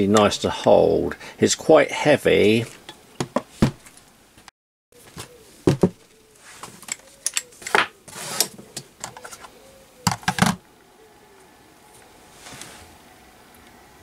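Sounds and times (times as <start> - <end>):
tools clicking and knocking: 6.8 - 7.8.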